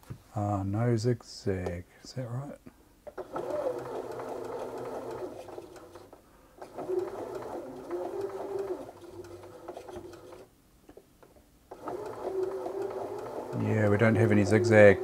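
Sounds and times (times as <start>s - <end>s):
sewing machine motor hum: 3.1s - 10.5s, 11.7s - 15.0s.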